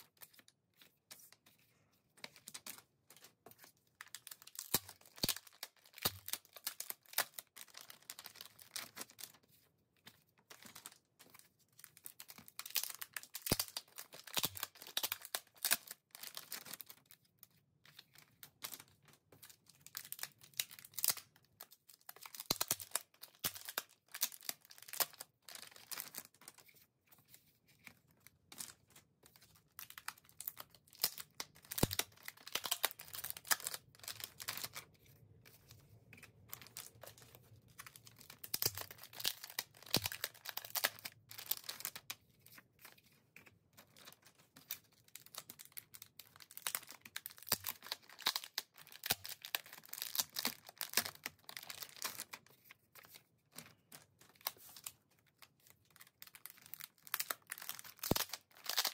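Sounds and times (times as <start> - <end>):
plastic pouch rustling and tearing: 4.0 - 9.4, 11.9 - 17.2, 21.9 - 26.7, 27.8 - 43.1, 43.8 - 58.9.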